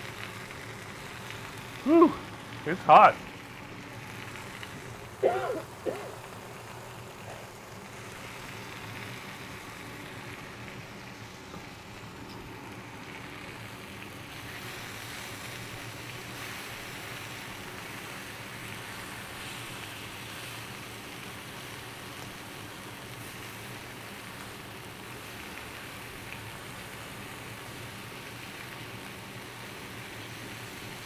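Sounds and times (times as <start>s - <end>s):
chicken sizzling on a griddle: 0.0s - 31.0s.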